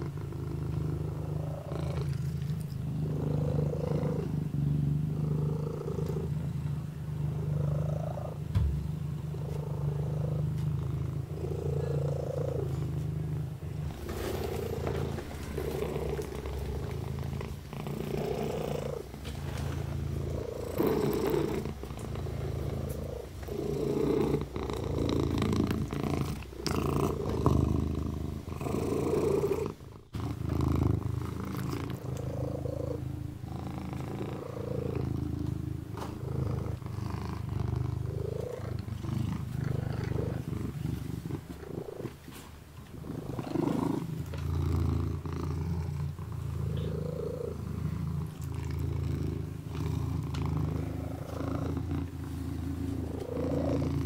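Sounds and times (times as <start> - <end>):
kitten purring: 0.0 - 54.0
soft licking clicks: 20.3 - 22.2, 31.2 - 32.4, 49.7 - 50.6.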